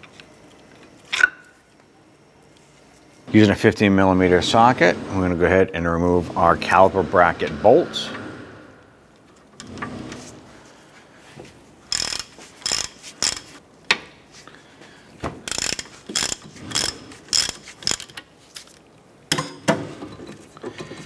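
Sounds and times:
socket ratchet clicking: 11.9 - 13.5, 15.5 - 18.2.

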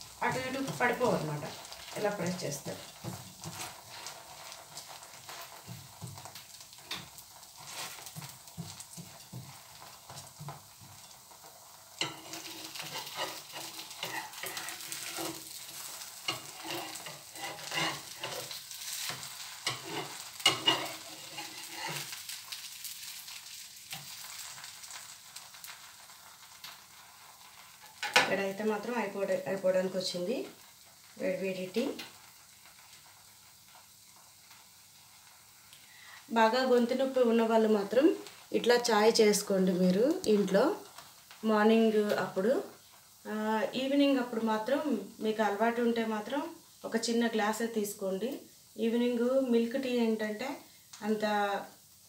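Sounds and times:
dosa sizzling in butter: 0.0 - 52.0
spatula scraping and tapping: 2.7 - 4.1, 5.3 - 11.2, 12.0 - 22.2.

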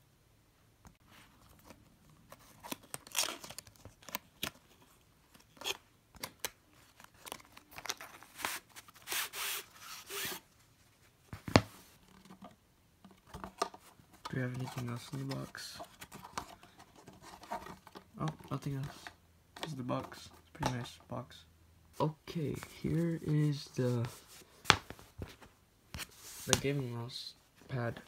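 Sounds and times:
cardboard scraping and rustling: 13.3 - 19.1.

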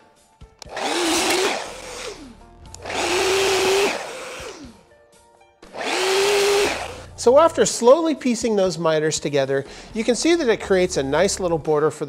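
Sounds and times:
miter saw cutting wood: 0.7 - 4.8, 5.7 - 7.2.

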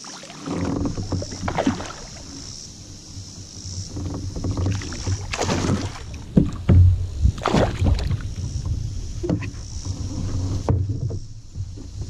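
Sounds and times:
fish splashing at water surface: 1.2 - 2.3, 4.8 - 6.1, 7.4 - 8.2.

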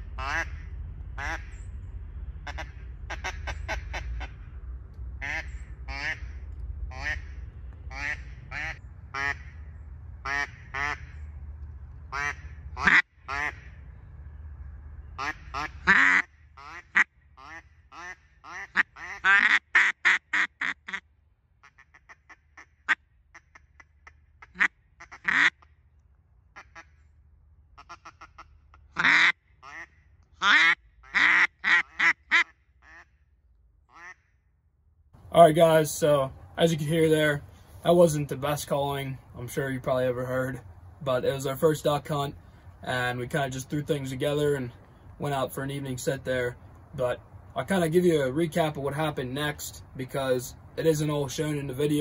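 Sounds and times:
duck call quacks: 0.2 - 0.6, 1.2 - 1.6, 2.4 - 4.4, 5.2 - 9.6, 10.2 - 11.2, 12.1 - 13.7, 15.2 - 21.0, 21.6 - 25.7, 26.6 - 27.0, 27.8 - 33.2, 33.9 - 34.3.

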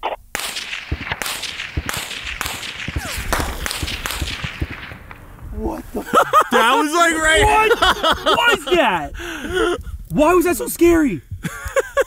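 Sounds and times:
supersonic bullet cracks: 0.3 - 6.2
ringing echo: 0.4 - 6.6.

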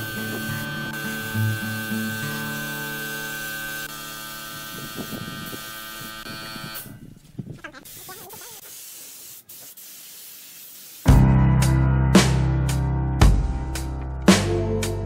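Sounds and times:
spray gun hissing: 0.0 - 7.0, 7.7 - 11.1
loud music with heavy drum beat: 11.1 - 15.0.

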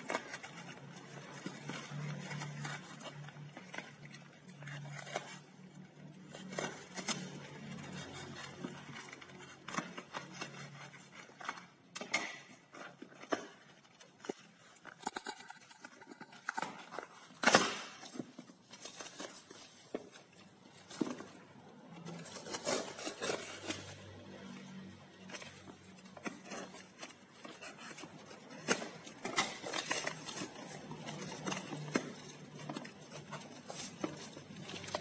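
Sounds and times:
packaging being handled: 0.0 - 35.0.

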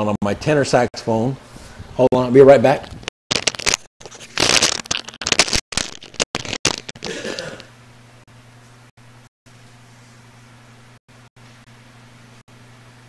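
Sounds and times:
rustling handling noise: 2.8 - 7.6.

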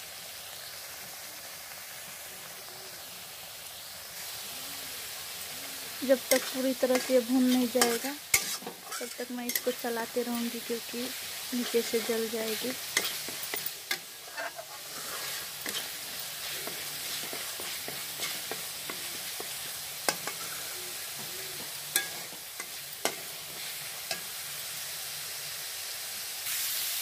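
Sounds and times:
masala sizzling in a pan: 0.0 - 27.0.

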